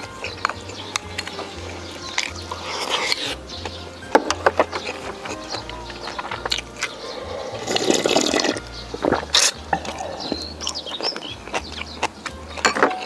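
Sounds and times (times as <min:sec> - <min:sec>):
wet chewing: 0:00.0 - 0:13.0
slurp of liquid: 0:07.2 - 0:11.2.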